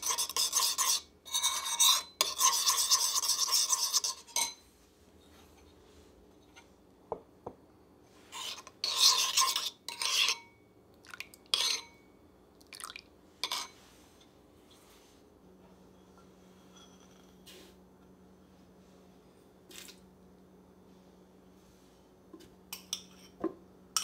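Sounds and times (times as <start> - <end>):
metal spoon scraping bowl: 0.0 - 4.6, 8.3 - 10.6, 11.5 - 12.0, 13.4 - 13.8, 15.9 - 17.6.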